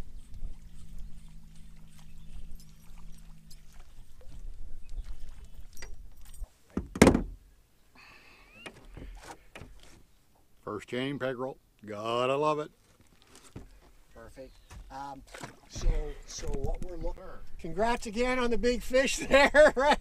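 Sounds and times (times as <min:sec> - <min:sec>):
low hum: 0:00.0 - 0:06.4
handling knocks in boat: 0:06.7 - 0:07.4
loud thump: 0:06.8 - 0:07.4.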